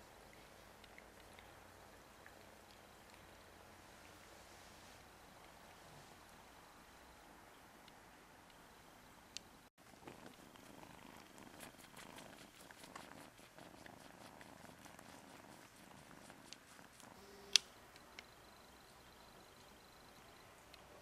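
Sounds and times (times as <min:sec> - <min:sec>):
cats purring softly: 0:00.0 - 0:08.0, 0:09.8 - 0:17.5.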